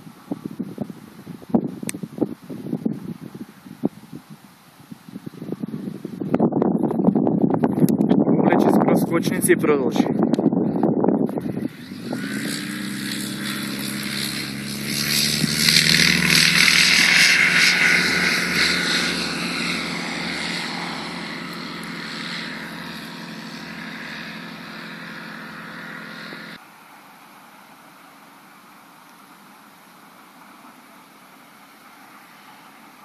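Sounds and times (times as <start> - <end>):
propeller aircraft engine: 10.3 - 26.6.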